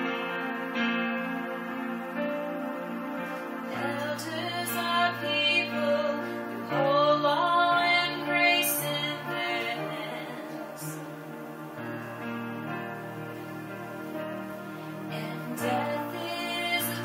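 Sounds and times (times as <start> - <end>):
electric keyboard chords: 0.0 - 17.0
woman singing: 3.7 - 11.0, 15.1 - 17.0.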